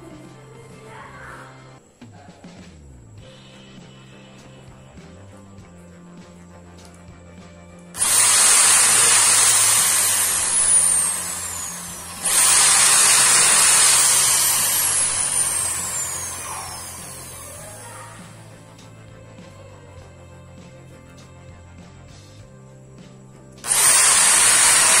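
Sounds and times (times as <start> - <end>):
electric drill boring into wood: 8.0 - 18.6, 23.6 - 25.0.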